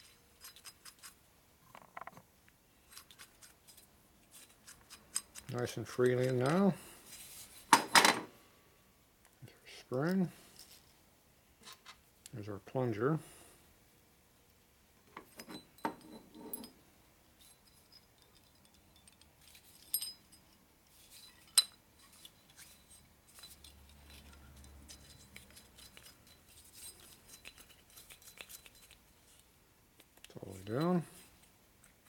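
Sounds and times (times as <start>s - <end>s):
small metal parts clicking: 0.0s - 2.2s, 2.8s - 6.7s, 17.4s - 31.0s.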